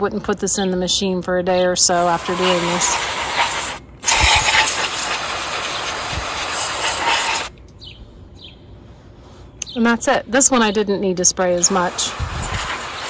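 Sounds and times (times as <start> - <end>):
aerosol spray can hissing: 2.0 - 7.5, 11.6 - 13.0.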